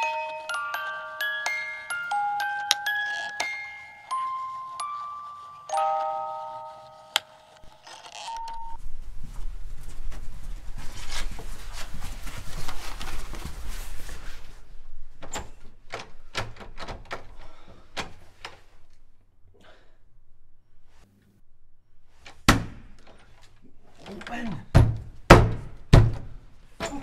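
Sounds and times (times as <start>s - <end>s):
footsteps and scuffles: 8.8s - 14.7s
fist banging on door: 24.7s - 26.4s.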